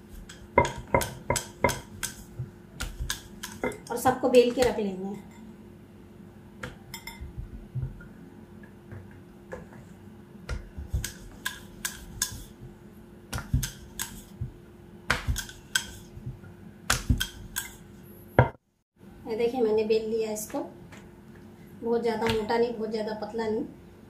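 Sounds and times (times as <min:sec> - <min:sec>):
dough slapped: 0:00.6 - 0:03.7, 0:13.3 - 0:17.7.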